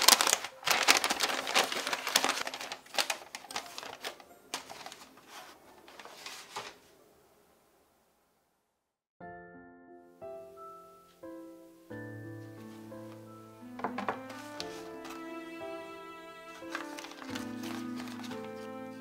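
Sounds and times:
aluminium foil crinkling: 0.0 - 6.8, 16.5 - 19.0.

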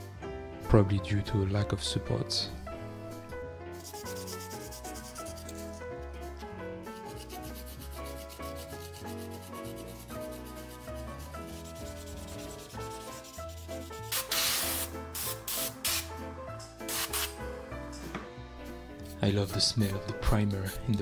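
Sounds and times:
sandpaper rubbing in short strokes: 3.8 - 5.8.

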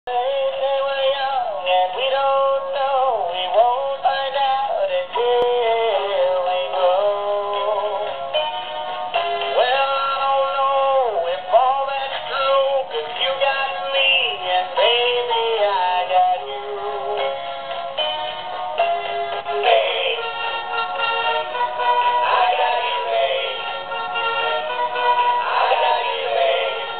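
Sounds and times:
music backing: 0.1 - 26.9
toy singing electronic voice: 19.5 - 20.3.

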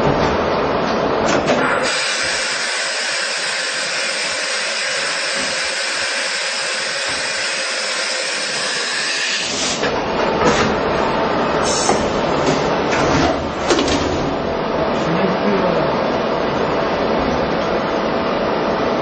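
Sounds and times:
machine running noise: 0.0 - 19.0
machine hissing: 1.6 - 9.8
machine clunks: 11.9 - 14.4.

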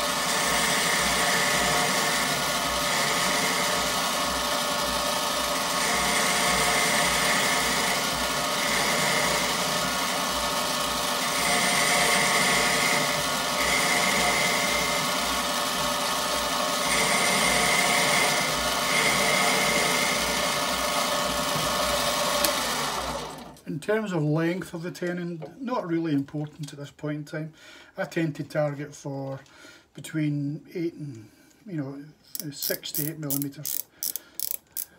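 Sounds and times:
metal lathe running: 0.0 - 23.3, 32.9 - 34.9.

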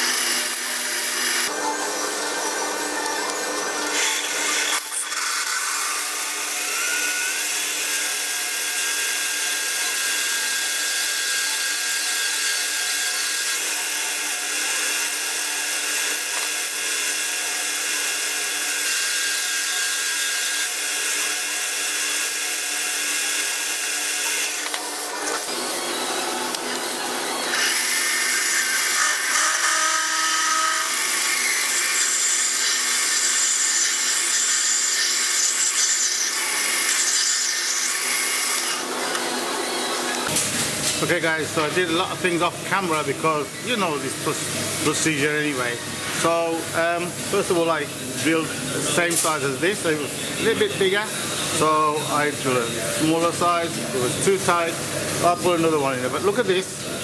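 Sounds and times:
metal lathe drilling brass: 0.0 - 26.4, 27.0 - 40.3.

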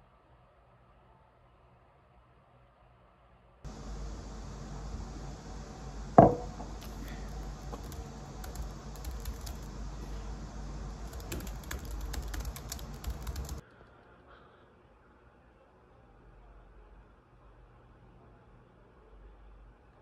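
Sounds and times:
steady low hum: 3.7 - 13.6.

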